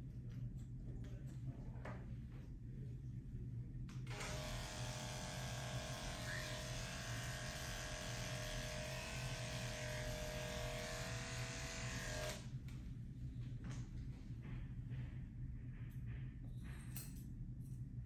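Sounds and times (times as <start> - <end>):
electric clipper buzzing: 4.1 - 12.5.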